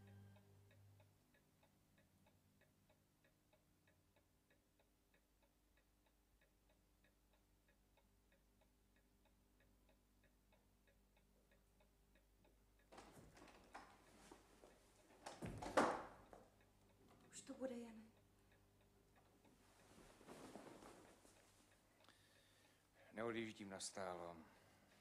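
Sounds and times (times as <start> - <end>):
faint clock ticking: 0.0 - 25.0
rustling noise: 19.6 - 21.8.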